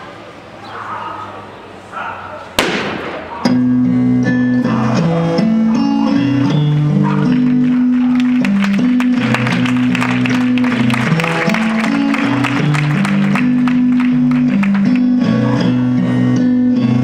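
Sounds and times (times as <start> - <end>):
music with held low notes: 3.4 - 17.0.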